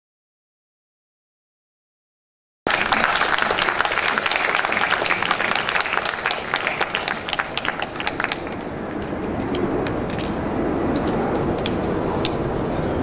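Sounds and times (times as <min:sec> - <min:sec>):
crowd applauding: 0:02.7 - 0:13.0
voices: 0:02.7 - 0:13.0.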